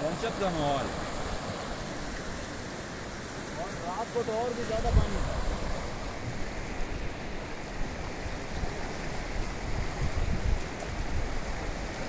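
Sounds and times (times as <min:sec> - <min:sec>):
river rushing: 0:00.0 - 0:12.0
wind buffeting microphone: 0:04.7 - 0:12.0.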